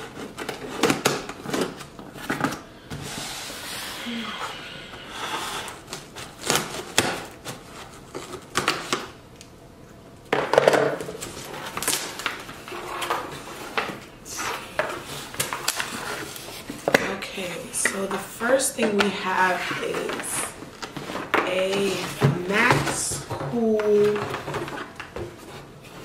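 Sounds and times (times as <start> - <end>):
cardboard scraping and rustling: 11.1 - 16.9.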